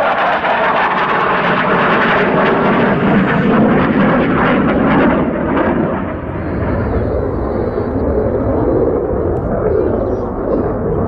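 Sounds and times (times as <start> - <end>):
jet engine roar with crackle: 0.0 - 11.0.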